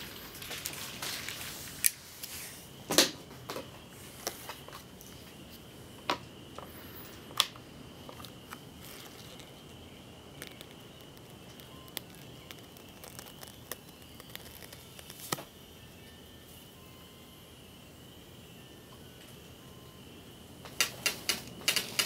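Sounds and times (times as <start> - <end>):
high-pitched whine: 0.0 - 20.6
faint electric crackling: 3.8 - 16.0
sharp electric snaps: 8.2 - 15.6, 20.6 - 22.0.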